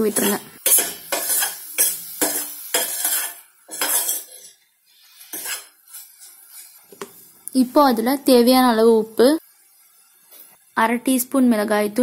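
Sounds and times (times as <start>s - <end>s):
spoon scraping steel pan: 0.0s - 6.9s.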